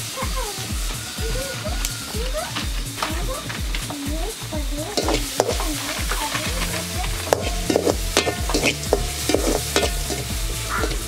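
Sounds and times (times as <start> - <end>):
background music: 0.0 - 11.0
vegetables sizzling in oil: 0.0 - 11.0
spatula clacking against pan: 4.9 - 11.0.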